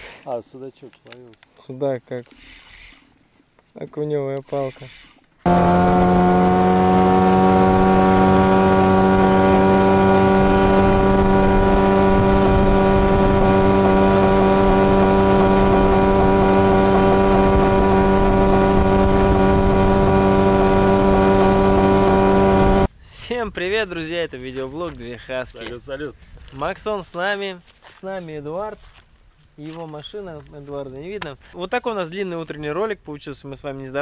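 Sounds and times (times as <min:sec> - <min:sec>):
outboard boat motor running: 0:05.5 - 0:22.9.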